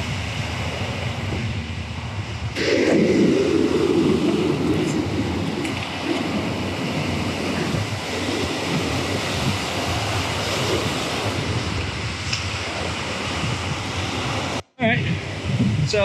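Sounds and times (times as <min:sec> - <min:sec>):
ocean surf breaking on rocks: 0:00.0 - 0:16.0
wind buffeting microphone: 0:00.0 - 0:16.0.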